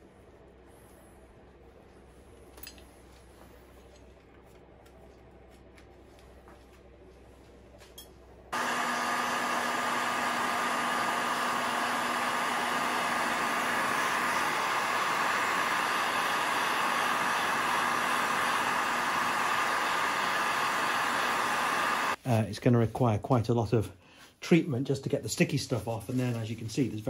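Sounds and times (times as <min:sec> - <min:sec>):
heat gun blowing: 0:08.6 - 0:22.2.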